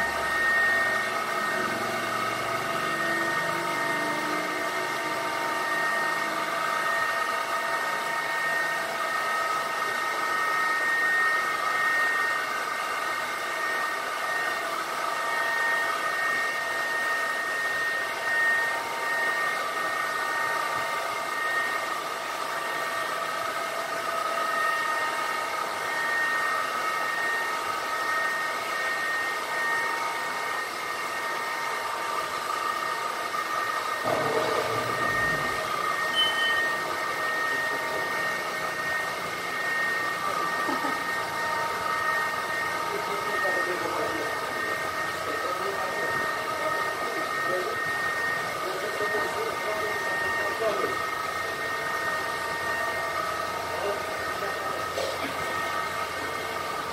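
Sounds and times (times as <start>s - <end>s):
machinery whining: 0.0s - 7.5s, 34.0s - 50.8s.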